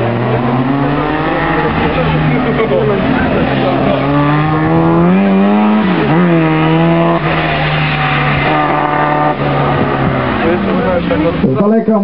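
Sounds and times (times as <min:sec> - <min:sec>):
race car engine revving: 0:00.0 - 0:11.6.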